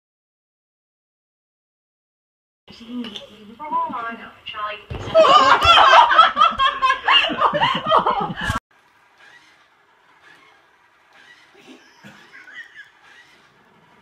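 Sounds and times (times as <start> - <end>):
hearty laughter: 5.0 - 8.6, 11.6 - 13.5.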